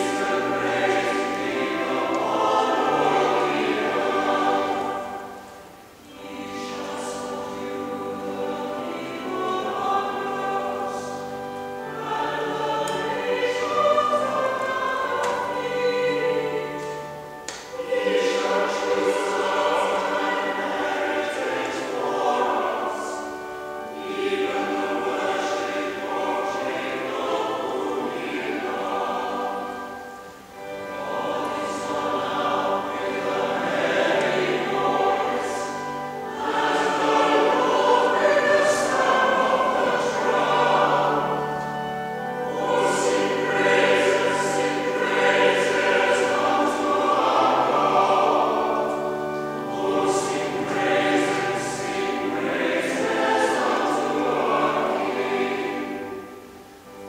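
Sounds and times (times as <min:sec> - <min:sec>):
church choir chanting a psalm: 0:00.0 - 0:57.0.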